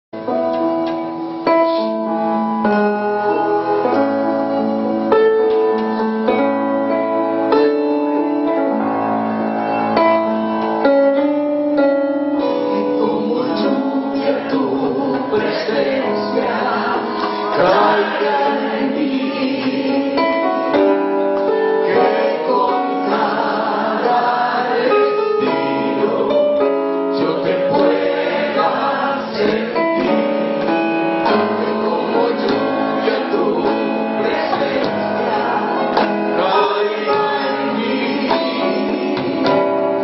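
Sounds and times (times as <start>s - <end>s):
keyboard chords: 0.2s - 40.0s
singers over band: 12.4s - 40.0s.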